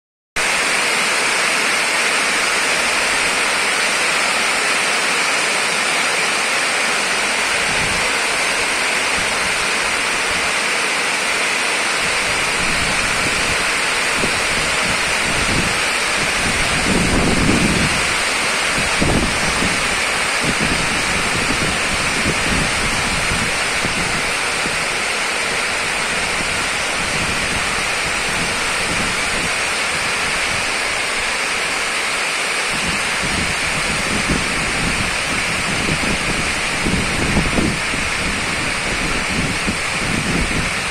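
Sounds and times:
heavy rain hissing: 0:00.4 - 0:40.9
wind buffeting microphone: 0:07.4 - 0:10.6, 0:12.0 - 0:31.8, 0:32.7 - 0:40.9.

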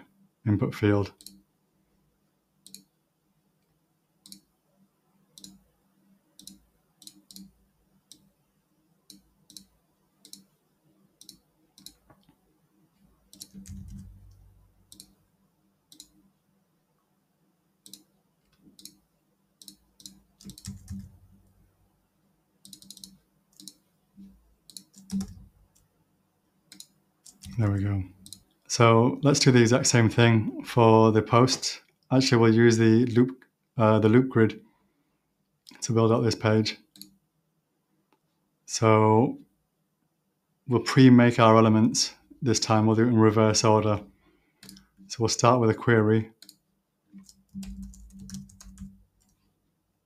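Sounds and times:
computer mouse clicking: 0:01.2 - 0:01.4, 0:02.6 - 0:03.0, 0:04.2 - 0:04.5, 0:05.4 - 0:05.7, 0:06.4 - 0:08.3, 0:09.1 - 0:10.5, 0:11.2 - 0:12.4, 0:13.3 - 0:15.2, 0:15.9 - 0:16.2, 0:17.8 - 0:19.0, 0:19.6 - 0:21.2, 0:22.6 - 0:25.9, 0:26.7 - 0:28.6, 0:36.9 - 0:37.2, 0:44.6 - 0:45.1, 0:46.4 - 0:49.5.

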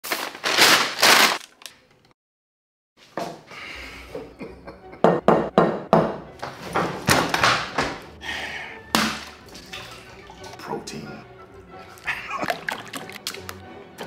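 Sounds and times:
egg shell being cracked: 0:12.4 - 0:13.6.

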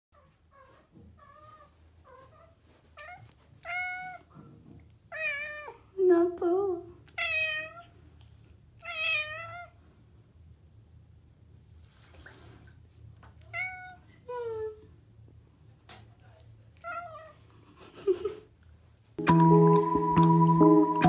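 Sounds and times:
cat meowing: 0:05.1 - 0:05.8, 0:07.2 - 0:07.9, 0:08.8 - 0:09.7, 0:13.5 - 0:14.0.

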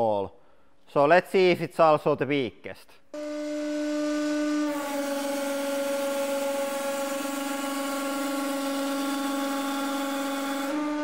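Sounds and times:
hydraulic pump motor humming: 0:03.2 - 0:11.0.

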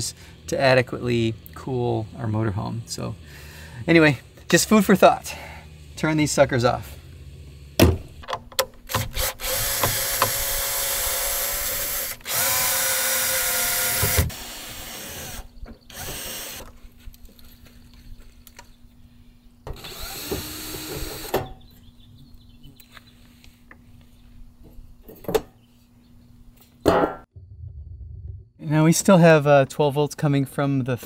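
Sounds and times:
drill clicks: 0:08.3 - 0:16.7
cordless drill motor running: 0:08.9 - 0:16.7, 0:19.7 - 0:21.3.

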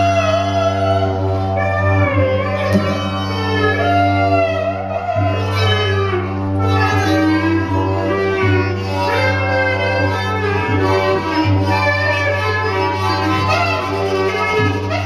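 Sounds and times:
low instrumental drone: 0:00.0 - 0:15.0
sliding wavering melody: 0:00.0 - 0:15.0.

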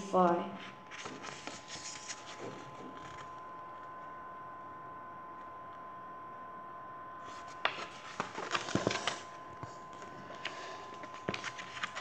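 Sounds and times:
book pages rustling: 0:00.6 - 0:03.3, 0:07.2 - 0:12.0.

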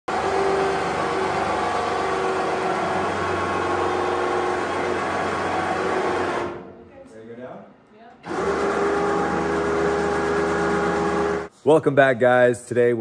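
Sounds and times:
electric winch motor whine: 0:00.1 - 0:06.7, 0:08.2 - 0:11.5.

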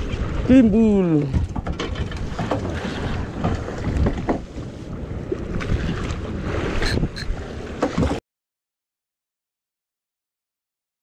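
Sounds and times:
water washing around boat: 0:00.0 - 0:08.2
wind buffeting microphone: 0:00.0 - 0:08.2.

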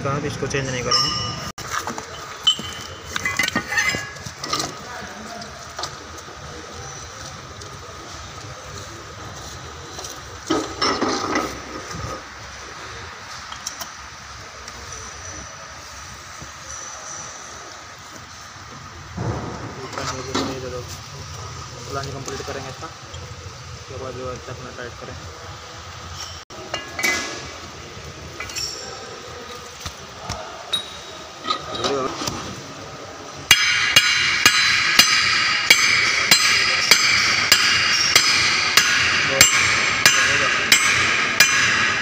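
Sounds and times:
steel parts clinking: 0:00.7 - 0:04.9, 0:10.5 - 0:11.8, 0:26.1 - 0:27.7, 0:28.3 - 0:29.8, 0:33.5 - 0:42.0
metal parts clinking and scraping: 0:01.0 - 0:04.9, 0:28.4 - 0:29.0
metal parts clattering: 0:01.6 - 0:04.8.

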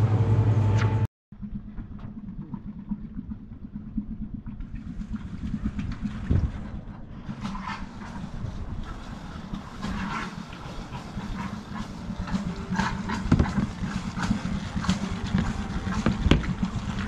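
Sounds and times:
wind rumble on microphone: 0:04.2 - 0:17.0.

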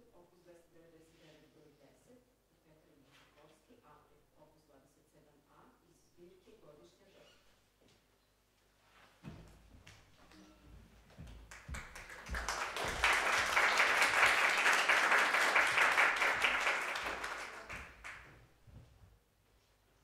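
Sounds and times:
footsteps on wooden stage: 0:09.1 - 0:13.5
audience applause: 0:11.5 - 0:18.3.

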